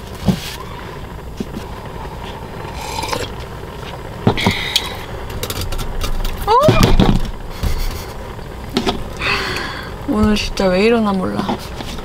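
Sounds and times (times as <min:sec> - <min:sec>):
gas stove low rumble: 0:00.0 - 0:12.0
knocks on grill: 0:06.6 - 0:08.0.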